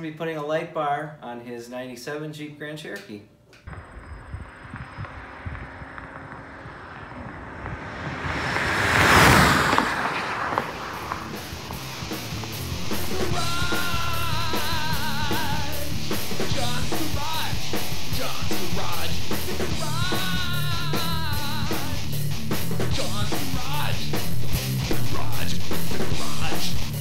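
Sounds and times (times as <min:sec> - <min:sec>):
driving drum beat: 0:11.0 - 0:27.0.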